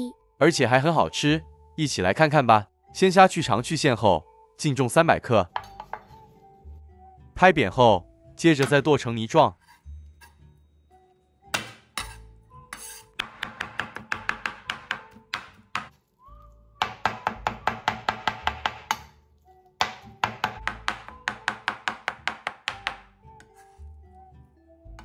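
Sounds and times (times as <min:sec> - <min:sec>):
soft background music: 0:00.0 - 0:25.0
cleaver chopping on cutting board: 0:12.8 - 0:15.9, 0:16.8 - 0:19.1, 0:19.8 - 0:23.0.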